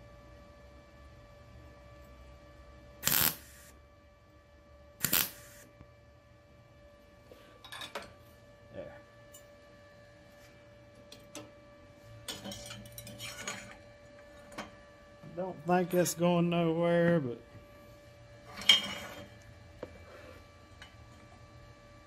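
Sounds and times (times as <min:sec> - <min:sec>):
steady low hum: 0:00.0 - 0:22.0
welding arc crackling: 0:03.0 - 0:03.8, 0:05.0 - 0:05.7.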